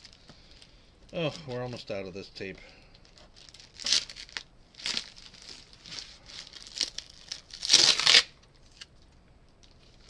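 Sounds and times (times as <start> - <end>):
plastic crinkling: 2.9 - 10.0
tape ripping off plastic: 5.9 - 8.9.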